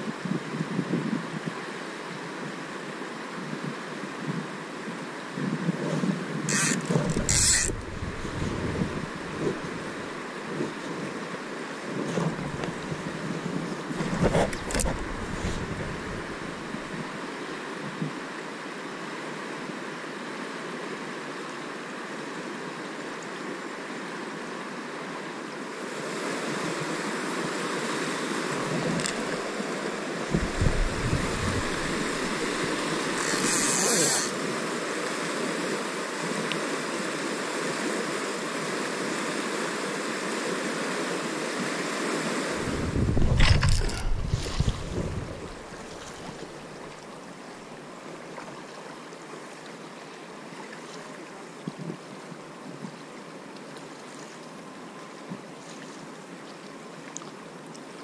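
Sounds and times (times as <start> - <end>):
wind buffeting microphone: 5.4 - 11.1, 11.9 - 17.2, 30.3 - 33.2, 42.6 - 46.8
river rushing: 6.5 - 58.0.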